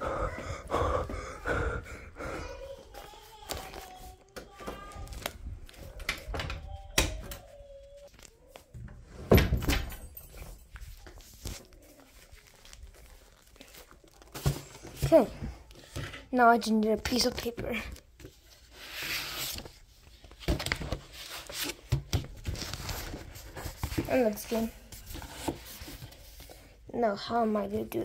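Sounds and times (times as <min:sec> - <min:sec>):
faint voice: 0:00.0 - 0:05.2
things being handled: 0:02.5 - 0:26.8.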